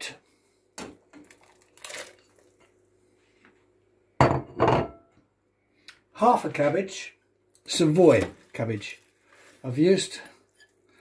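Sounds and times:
plate clinking on worktop: 0:04.2 - 0:05.0.

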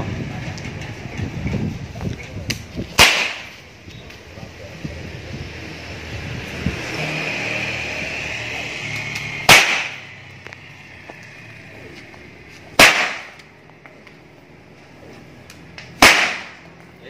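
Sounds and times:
whip cracks: 0:02.5 - 0:03.6, 0:09.0 - 0:10.1, 0:12.8 - 0:13.5, 0:15.9 - 0:16.6.

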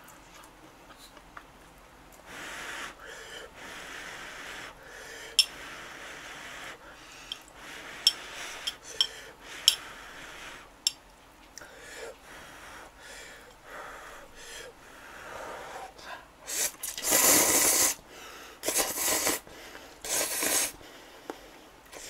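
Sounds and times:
person slurping noodles: 0:16.5 - 0:18.0, 0:18.6 - 0:19.4, 0:20.1 - 0:20.7.

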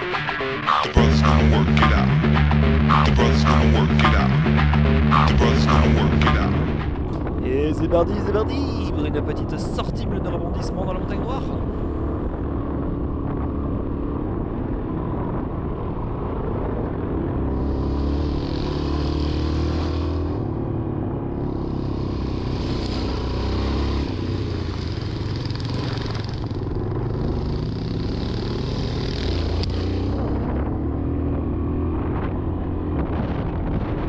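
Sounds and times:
motorcycle engine running: 0:00.0 - 0:34.0
wind rumble on microphone: 0:06.8 - 0:19.0, 0:29.6 - 0:34.0
hiss: 0:21.7 - 0:23.5.

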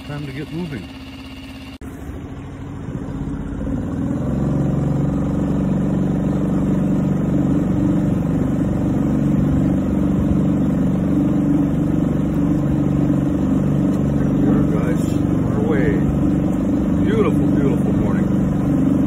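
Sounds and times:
outboard motor running: 0:00.0 - 0:19.0.

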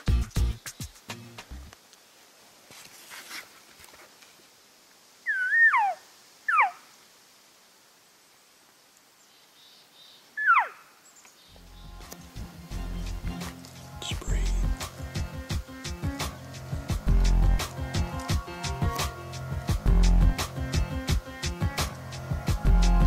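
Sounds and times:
elk mewing calls: 0:05.3 - 0:06.8, 0:10.4 - 0:10.8.

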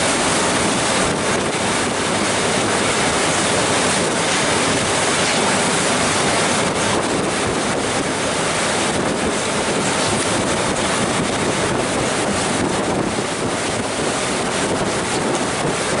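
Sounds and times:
churning wake water: 0:00.0 - 0:16.0
wind buffeting microphone: 0:00.0 - 0:16.0.

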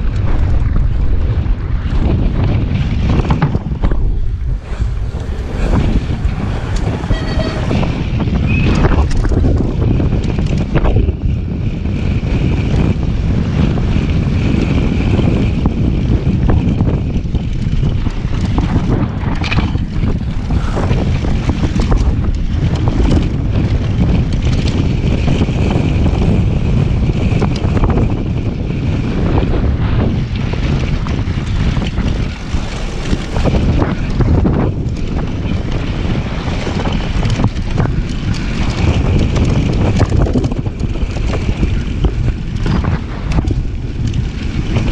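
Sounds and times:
bike rattling and knocking: 0:00.0 - 0:44.9
wind buffeting microphone: 0:00.0 - 0:44.9
tyres rumbling over gravel: 0:12.0 - 0:44.9.

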